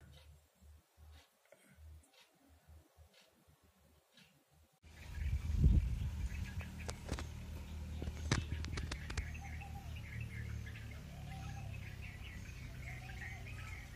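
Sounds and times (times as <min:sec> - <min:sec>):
small birds chirping: 0:04.1 - 0:13.9
steady low rumble: 0:04.9 - 0:10.8
sharp clicks: 0:08.0 - 0:09.4.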